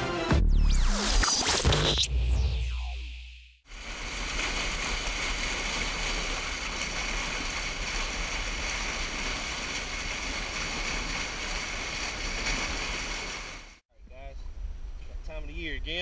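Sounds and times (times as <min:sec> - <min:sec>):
water rushing over spillway: 0:03.7 - 0:13.8.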